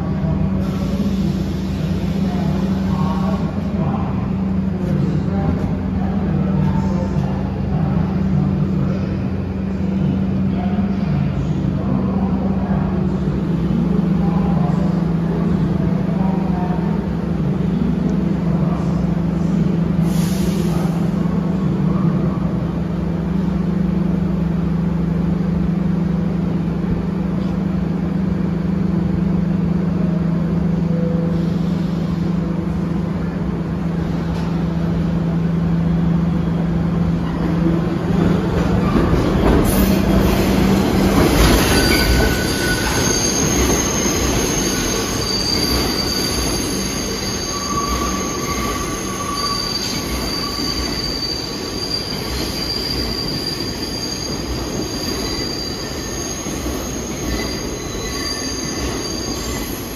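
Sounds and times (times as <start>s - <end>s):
subway train running: 0.0s - 59.9s.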